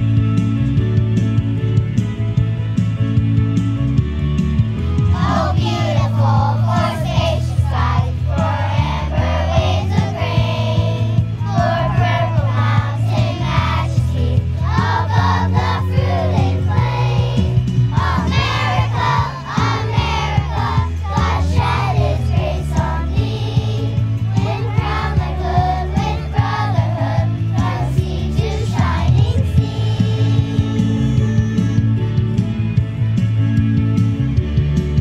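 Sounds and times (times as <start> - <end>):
instrumental accompaniment: 0.0 - 35.0
choir singing: 5.2 - 30.4.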